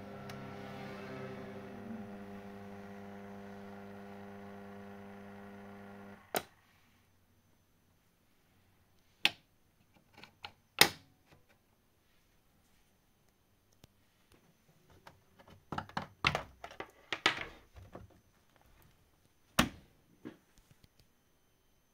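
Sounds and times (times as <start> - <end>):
amplifier mains hum: 0.0 - 6.7.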